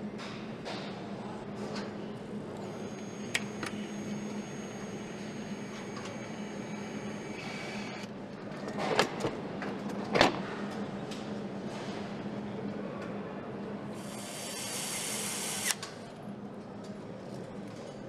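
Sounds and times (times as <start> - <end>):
steady machine hum: 0.0 - 8.5.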